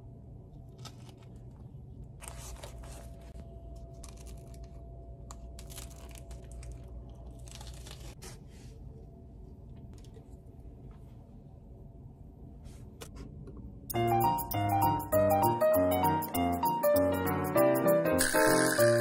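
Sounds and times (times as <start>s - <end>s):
paper wrapper crinkling and tearing: 0.7s - 8.3s.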